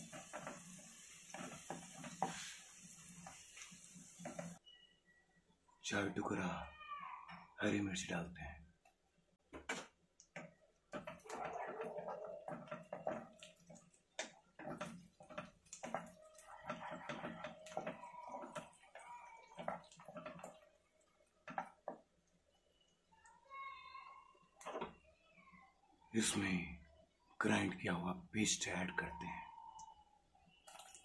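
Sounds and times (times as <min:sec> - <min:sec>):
spatula scraping a pan: 0:00.0 - 0:04.6, 0:10.4 - 0:20.7
oil spattering and popping: 0:12.4 - 0:22.1.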